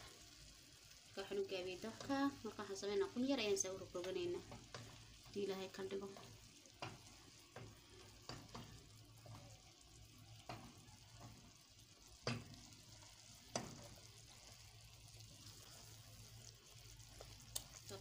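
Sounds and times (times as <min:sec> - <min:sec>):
faint sizzle: 0:00.0 - 0:18.0
wooden spoon knocking and scraping pot: 0:04.0 - 0:09.6, 0:10.3 - 0:11.6, 0:12.2 - 0:12.7, 0:13.5 - 0:14.1.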